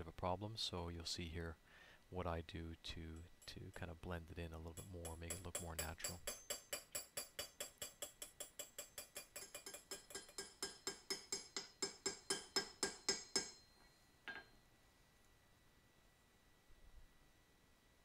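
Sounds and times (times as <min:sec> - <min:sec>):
hammer striking metal on anvil: 0:04.7 - 0:13.7.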